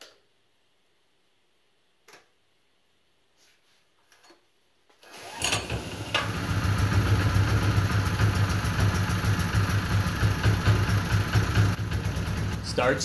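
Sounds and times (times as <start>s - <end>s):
small gasoline engine starting and running: 5.0s - 13.0s.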